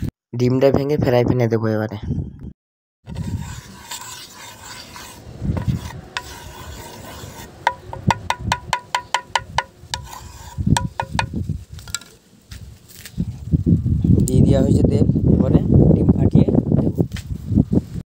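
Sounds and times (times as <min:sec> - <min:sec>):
wooden spatula scraping a pan: 0:03.1 - 0:11.4.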